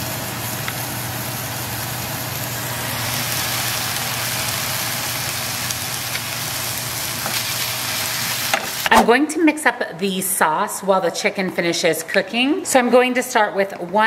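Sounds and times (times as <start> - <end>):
meat sizzling in a skillet: 0.0 - 8.9.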